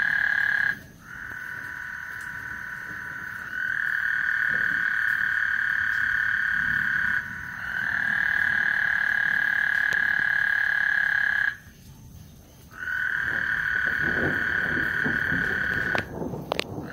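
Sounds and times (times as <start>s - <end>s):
chorus of frogs trilling: 0.0s - 11.7s, 12.6s - 16.9s.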